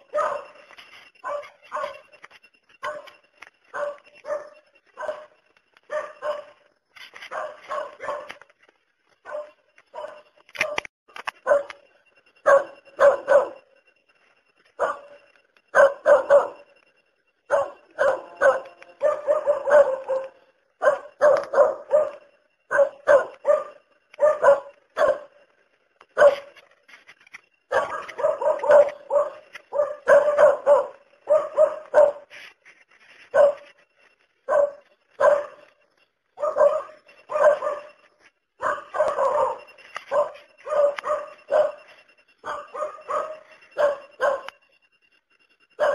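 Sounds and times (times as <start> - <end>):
dog barking: 0.0 - 0.6, 1.2 - 2.1, 2.8 - 6.6, 7.2 - 8.5, 9.2 - 11.8, 12.4 - 13.7, 14.8 - 16.7, 17.5 - 25.4, 26.2 - 26.6, 27.7 - 32.4, 33.3 - 33.8, 34.5 - 35.7, 36.4 - 38.0, 38.6 - 44.5.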